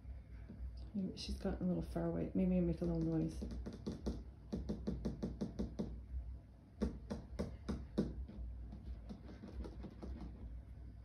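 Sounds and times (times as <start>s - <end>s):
rapid hand tapping: 2.8s - 6.0s, 6.8s - 10.5s.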